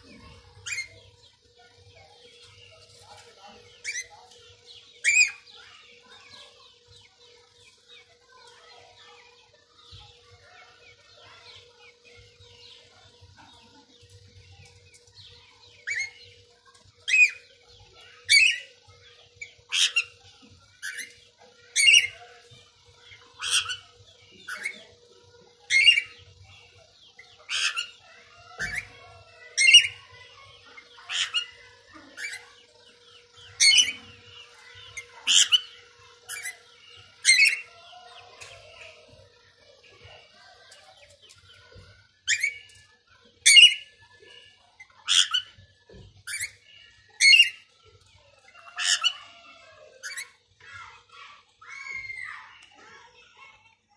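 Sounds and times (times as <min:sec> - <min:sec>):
parakeet squawking: 0:00.0 - 0:01.0, 0:19.4 - 0:20.2, 0:20.8 - 0:22.4, 0:23.0 - 0:24.9, 0:25.6 - 0:39.1, 0:42.3 - 0:42.8, 0:43.4 - 0:45.6, 0:46.3 - 0:47.7, 0:48.4 - 0:52.6.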